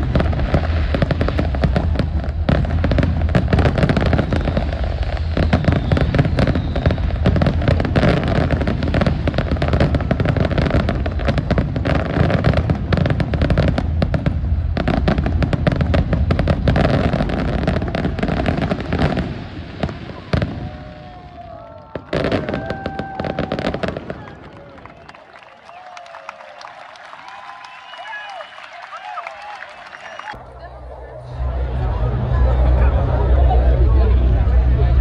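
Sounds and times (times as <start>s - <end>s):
fireworks booming and crackling: 0.0s - 25.1s.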